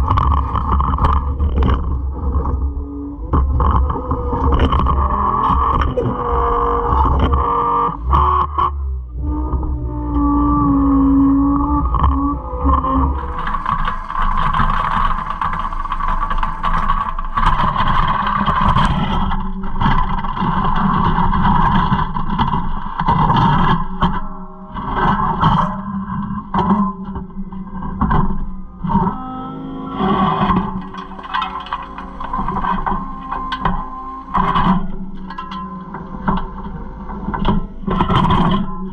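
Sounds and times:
concrete scraping and clanking on steel: 13.0 - 23.6, 29.0 - 38.9.

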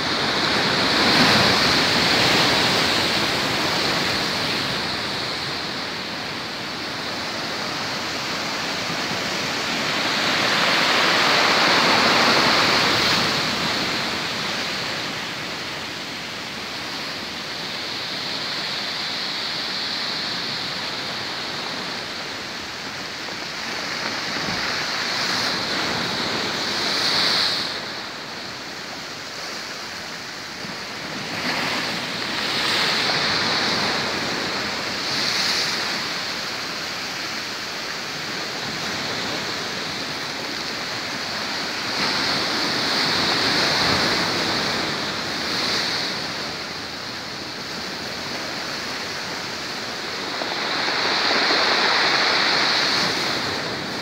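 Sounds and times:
sea waves breaking against pier: 0.0 - 54.0.

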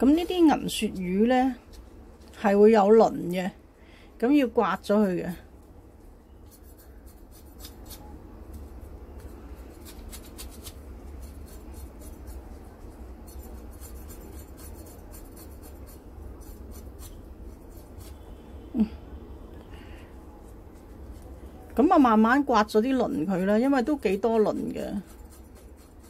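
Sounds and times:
knife scraping fish scales: 25.0 - 26.0.

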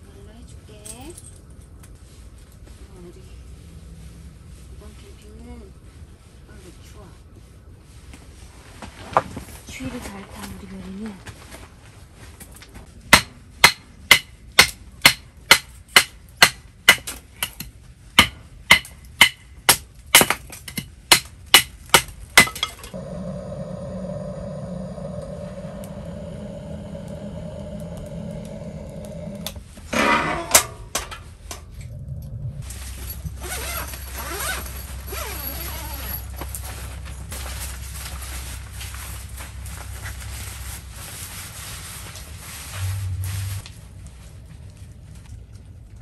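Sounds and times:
steady low noise: 22.9 - 29.8, 31.0 - 33.4, 36.3 - 46.0.

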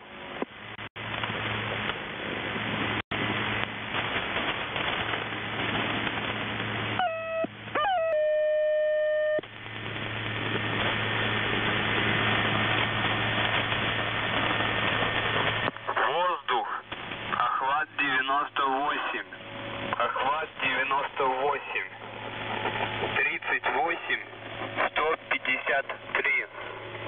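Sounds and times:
low hum: 0.0 - 27.0
radio static hiss: 3.2 - 27.0
steady radio tone: 15.6 - 27.0.

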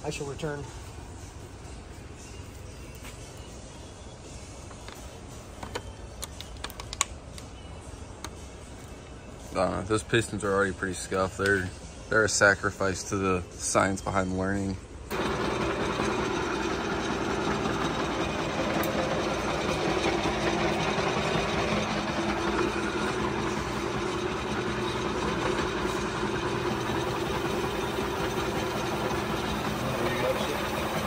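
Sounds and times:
abrasive pad scrubbing spinning metal: 15.1 - 31.0
metal lathe running: 15.1 - 31.0.

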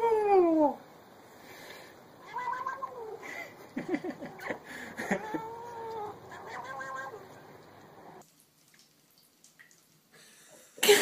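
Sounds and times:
cat meowing: 2.2 - 3.2, 5.1 - 7.4.

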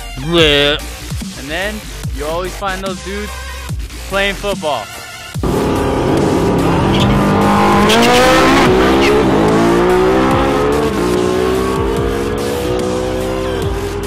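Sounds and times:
car engine accelerating: 5.4 - 14.0.

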